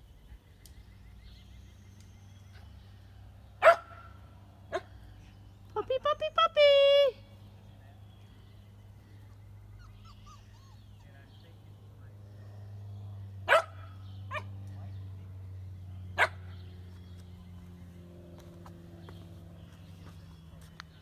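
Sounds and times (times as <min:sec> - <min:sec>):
steady low hum: 0:06.7 - 0:21.0
puppies yipping: 0:09.2 - 0:11.6, 0:13.5 - 0:14.6.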